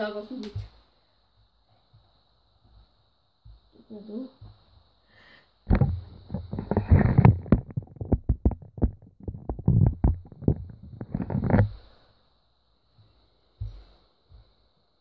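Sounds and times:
phone handling bumps and rubbing: 0:05.7 - 0:11.8.

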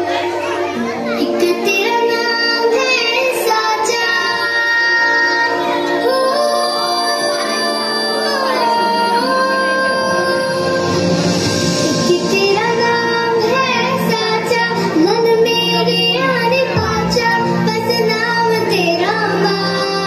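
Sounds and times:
child singing: 0:00.0 - 0:11.2, 0:12.0 - 0:20.0
instrumental backing music: 0:00.0 - 0:20.0.

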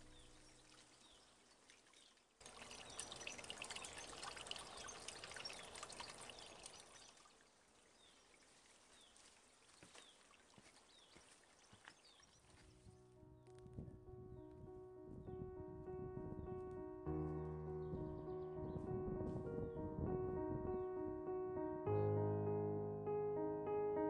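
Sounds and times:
faint trickling water: 0:00.0 - 0:13.0.

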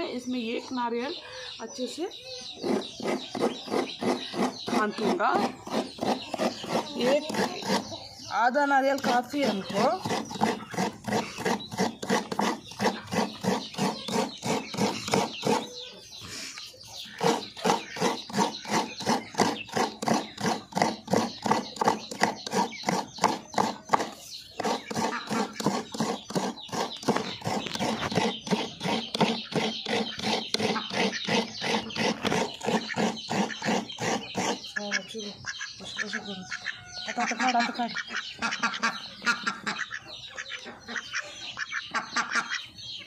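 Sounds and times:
coconut grating strokes: 0:02.6 - 0:08.1, 0:09.0 - 0:34.8.

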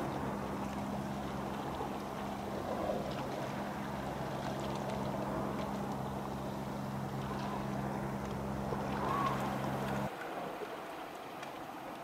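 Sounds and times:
ship engines humming: 0:00.0 - 0:10.1.

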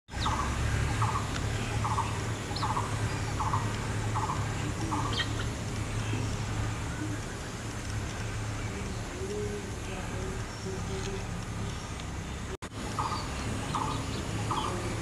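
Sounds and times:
bird squawking: 0:00.1 - 0:05.6
steady low hum: 0:00.1 - 0:15.0.

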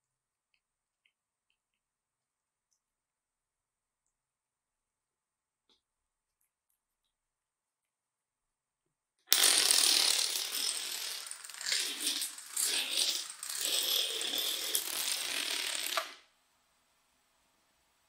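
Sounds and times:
domino blocks toppling: 0:09.3 - 0:16.2.

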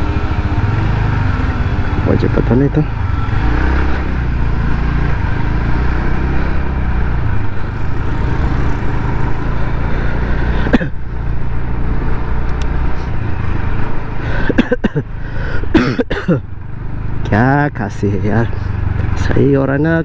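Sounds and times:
scooter engine hum: 0:00.0 - 0:19.9.

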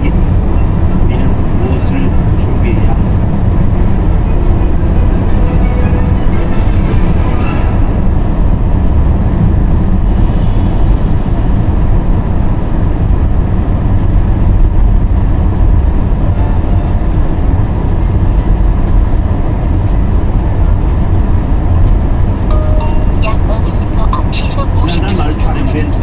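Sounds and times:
faint car radio: 0:00.0 - 0:06.6, 0:14.5 - 0:26.0
car engine and tyres rumbling: 0:00.0 - 0:26.0.

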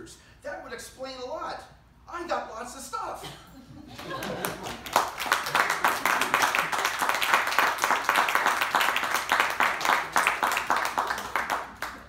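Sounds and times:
small audience applauding: 0:04.0 - 0:12.0.

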